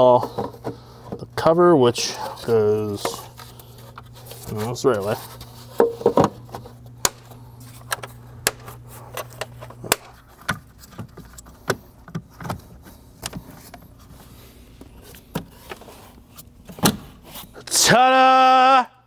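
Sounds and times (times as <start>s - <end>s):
plastic cover clicking into place: 7.0s - 12.6s.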